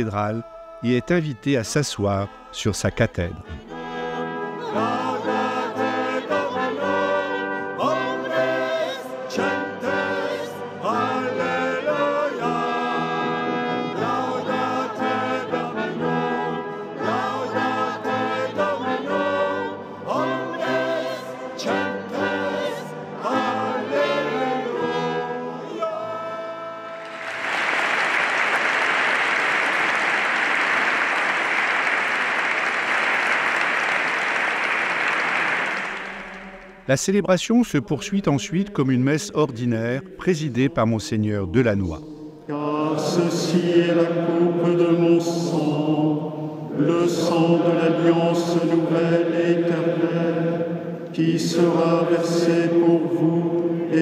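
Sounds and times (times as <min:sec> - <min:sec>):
choir with brass: 0:00.0 - 0:30.6, 0:42.0 - 0:54.0
congregation applauding: 0:27.0 - 0:36.8.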